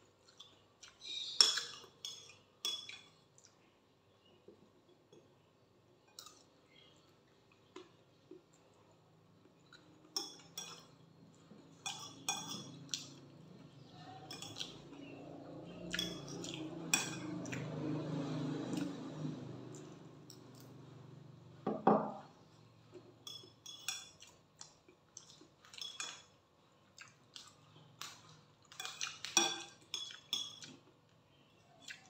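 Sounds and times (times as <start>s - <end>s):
metal spoon clinking on plate: 10.2s - 11.0s, 11.8s - 12.8s, 14.2s - 14.8s, 15.8s - 17.4s, 23.2s - 24.2s.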